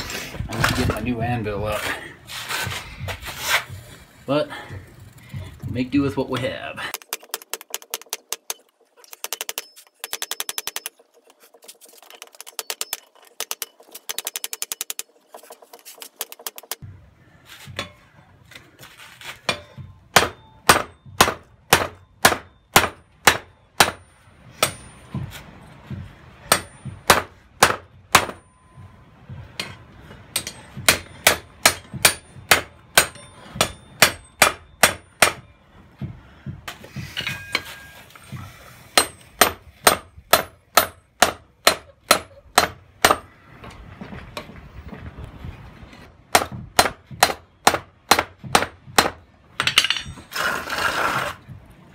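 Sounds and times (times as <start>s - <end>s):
hammer striking steel on anvil: 17.7s - 18.1s, 19.4s - 25.4s, 26.4s - 28.9s, 29.6s - 35.5s, 37.2s - 38.2s, 38.9s - 43.3s, 46.3s - 50.3s.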